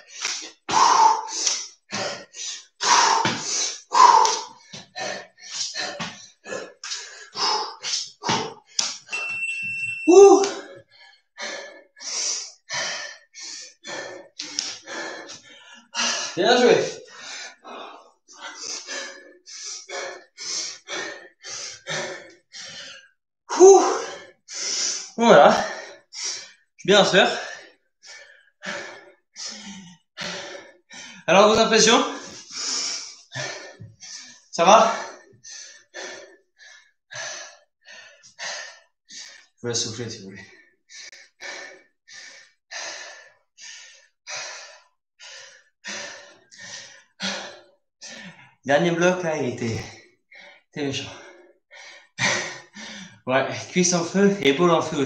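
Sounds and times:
man breathing hard: 0.0s - 9.1s, 10.5s - 26.7s, 27.3s - 31.3s, 32.1s - 39.6s, 40.4s - 48.6s, 49.8s - 53.3s.

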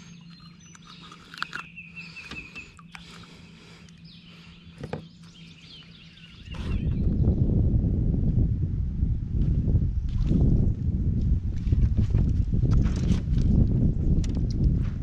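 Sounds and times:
birds chirping and whistling: 0.0s - 7.5s
faint steady hum: 0.0s - 12.6s
loud low rumble: 6.1s - 12.7s.

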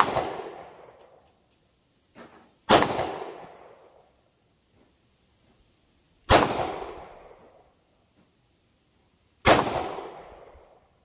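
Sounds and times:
pistol shots with echo: 0.0s - 1.0s, 2.7s - 3.6s, 6.3s - 7.2s, 9.4s - 10.4s.

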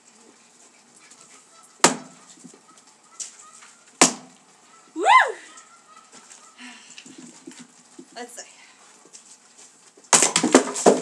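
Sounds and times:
axe chopping a log: 1.8s - 2.2s, 4.0s - 4.4s, 10.1s - 11.0s
short pitched cry: 4.9s - 5.6s.

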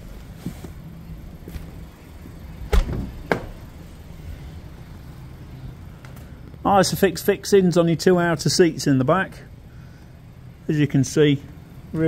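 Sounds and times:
low steady hum: 0.0s - 12.0s
car door clunks: 2.7s - 3.6s.

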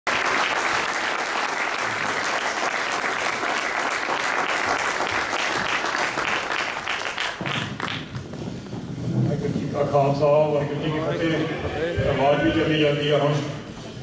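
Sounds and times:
audience applauding: 0.0s - 8.3s.

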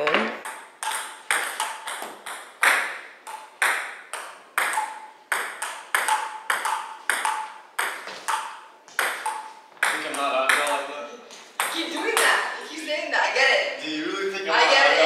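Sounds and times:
table tennis ball hits: 0.0s - 10.9s, 11.5s - 12.4s.

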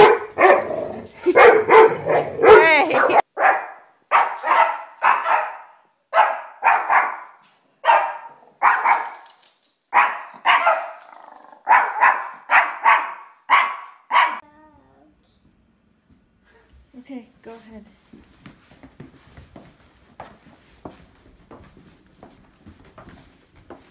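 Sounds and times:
small dog barking: 0.0s - 9.2s, 9.9s - 11.0s, 11.6s - 14.4s.

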